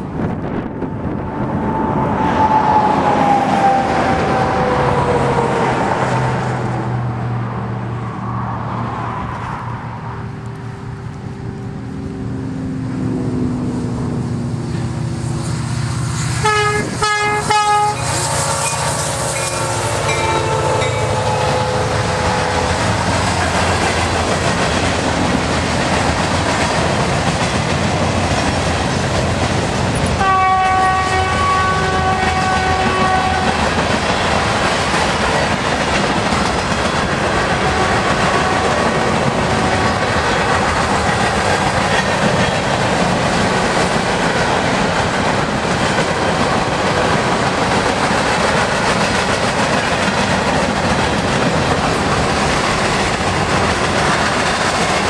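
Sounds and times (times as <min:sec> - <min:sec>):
freight cars rumbling: 0:00.0 - 0:55.0
train horn: 0:16.3 - 0:23.6, 0:30.2 - 0:33.7, 0:37.5 - 0:40.4
wheel clatter on rails: 0:32.4 - 0:55.0.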